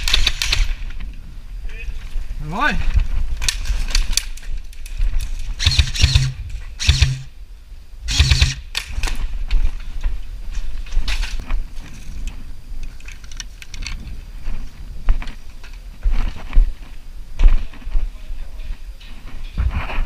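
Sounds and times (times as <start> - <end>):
airsoft rifle bursts: 5.6 - 7.3, 8.1 - 8.9.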